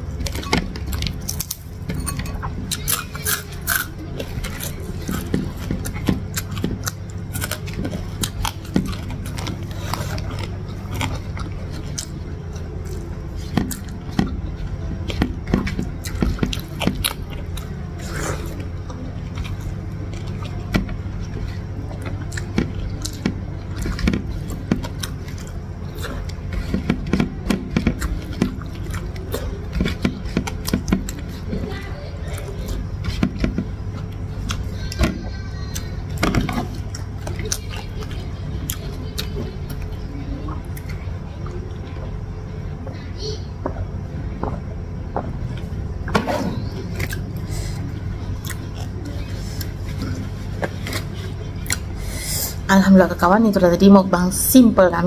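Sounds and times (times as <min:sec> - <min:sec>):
chewing and crunching: 0:00.0 - 0:54.0.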